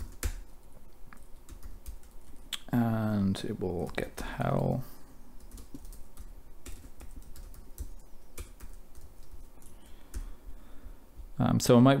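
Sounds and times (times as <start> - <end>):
computer keyboard typing: 0.0 - 0.6, 1.2 - 2.5, 3.7 - 4.8, 5.4 - 10.3.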